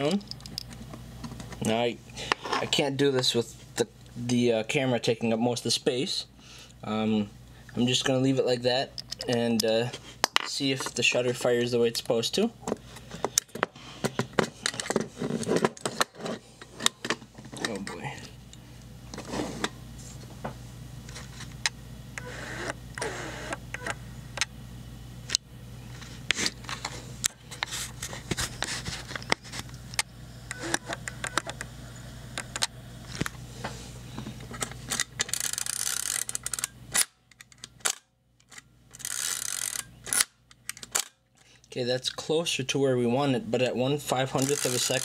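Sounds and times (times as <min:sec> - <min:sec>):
camera shutter clicks and ratcheting: 0:35.2 - 0:41.1, 0:44.4 - 0:45.0.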